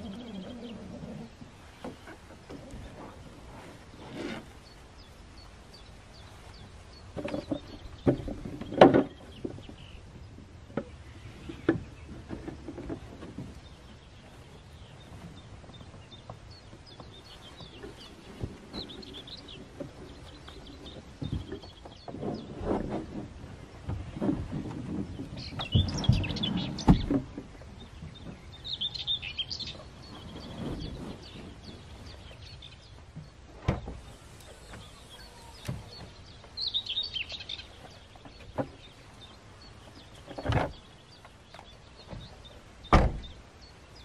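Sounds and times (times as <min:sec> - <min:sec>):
small birds chirping: 0:00.0 - 0:44.0
canoe knocking and thumping: 0:07.1 - 0:09.8.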